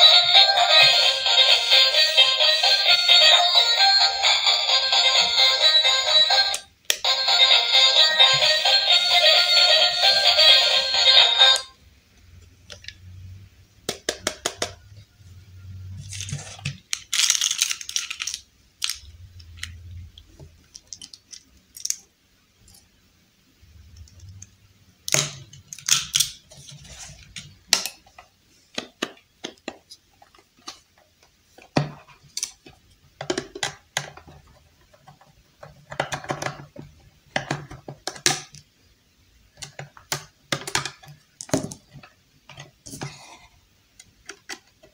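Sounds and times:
plastic toy pieces clicking on table: 16.8s - 19.8s, 20.6s - 22.1s.

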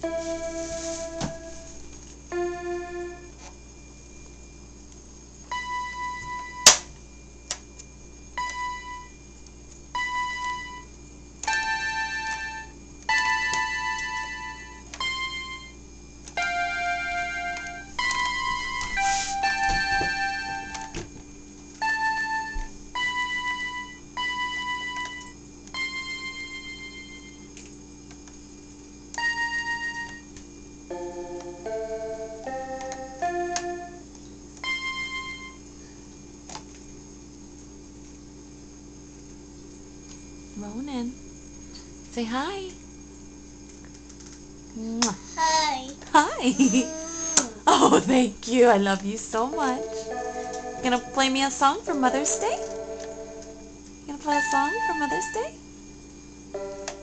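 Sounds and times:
toy keyboard notes: 8.4s - 9.1s, 9.9s - 21.0s, 21.7s - 27.5s, 29.1s - 30.3s, 30.9s - 35.6s, 49.4s - 55.6s.

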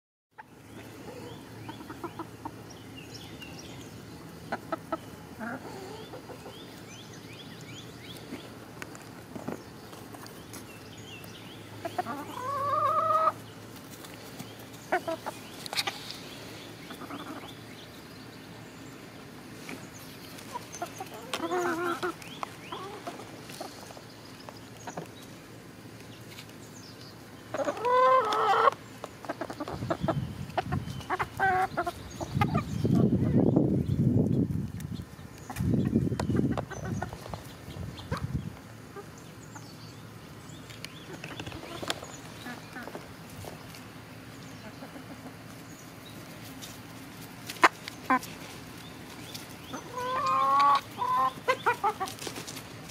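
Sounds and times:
chickens clucking: 0.4s - 52.9s
chicken drawn-out call: 11.8s - 13.4s, 20.5s - 23.8s, 27.5s - 30.2s, 49.7s - 52.5s.

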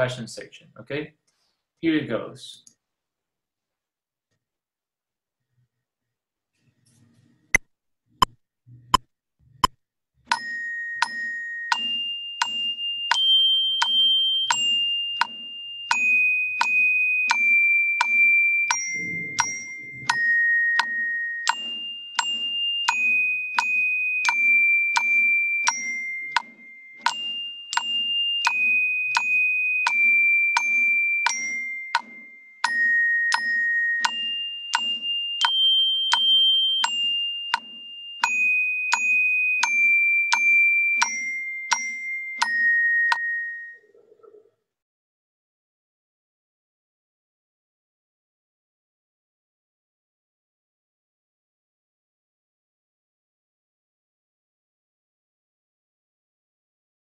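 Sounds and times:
metronome clicking: 9.6s - 43.8s
orchestra bells melody: 10.3s - 43.8s.

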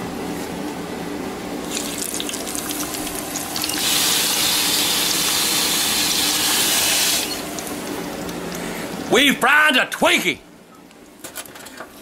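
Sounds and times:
loud steady hiss: 3.7s - 7.5s.

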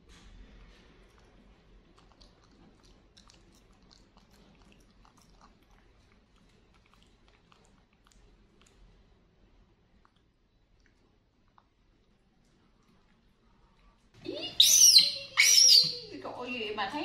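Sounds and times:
monkey mouth clicks and smacks: 0.0s - 9.0s
low room hum: 0.0s - 17.0s.

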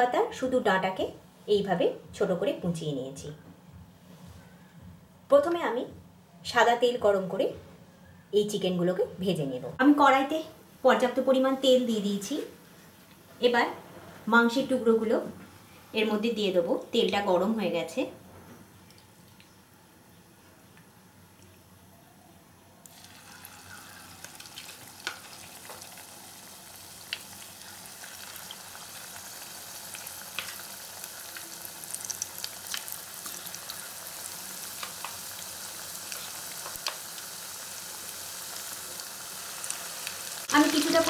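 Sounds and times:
chicken deep-frying in oil: 22.9s - 41.0s.

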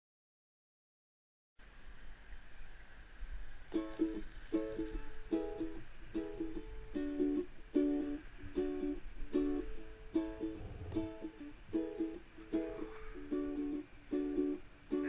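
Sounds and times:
plucked string chords: 3.7s - 15.0s.

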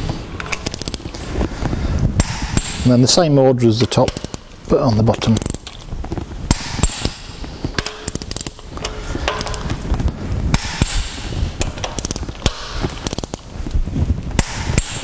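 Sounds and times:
sharp wrench clicks: 0.0s - 1.2s, 3.9s - 9.9s, 10.5s - 13.5s
torque wrench ratchet clicking: 0.0s - 1.2s, 5.2s - 9.8s, 11.6s - 13.4s.

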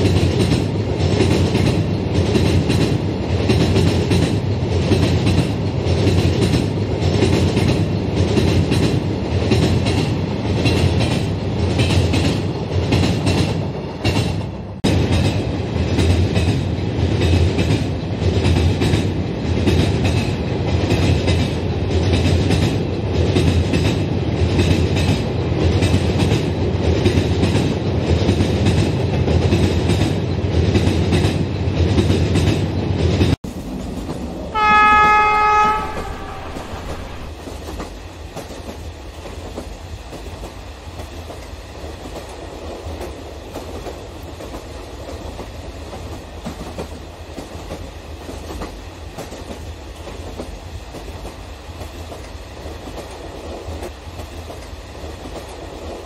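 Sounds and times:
diesel locomotive horn blast: 34.5s - 37.3s.

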